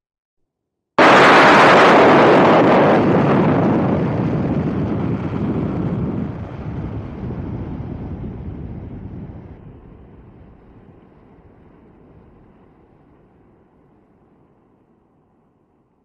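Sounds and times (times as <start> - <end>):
thunder rumbling: 1.0 - 13.2.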